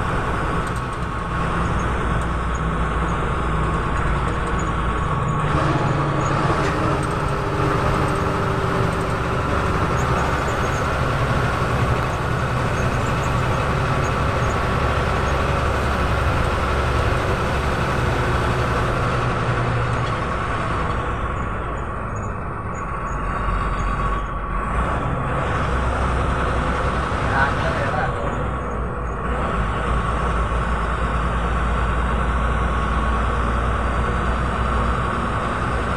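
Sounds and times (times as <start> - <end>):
bus diesel engine: 0.0 - 35.9
road noise: 0.0 - 35.9.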